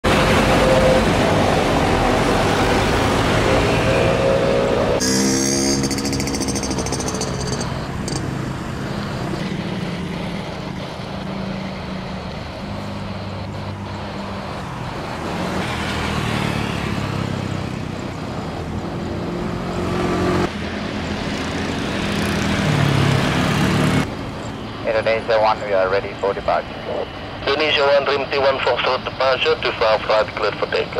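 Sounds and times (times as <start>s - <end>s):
jet engines rumbling: 7.4s - 19.2s, 24.0s - 30.9s.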